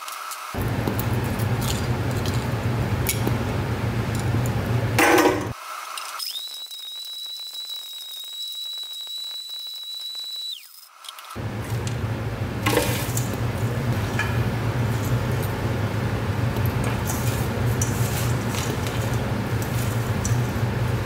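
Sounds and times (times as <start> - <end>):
blender motor whine: 6.1 - 11.5.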